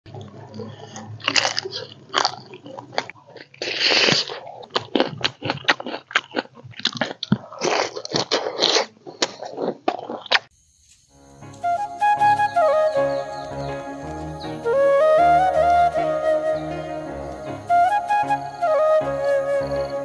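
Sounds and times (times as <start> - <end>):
person chewing crunchy food: 0.2 - 10.5.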